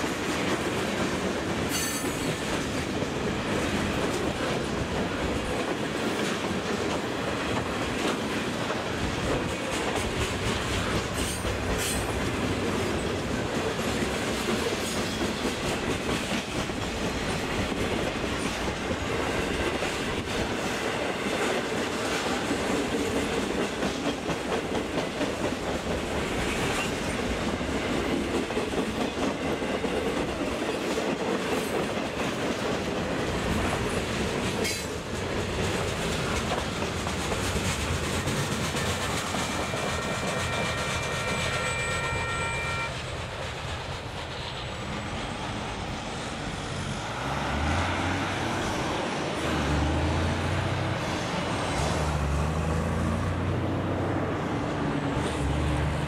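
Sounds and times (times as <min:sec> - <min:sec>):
freight train rumbling past: 0:00.0 - 0:56.0
high wheel squeal: 0:39.6 - 0:43.2.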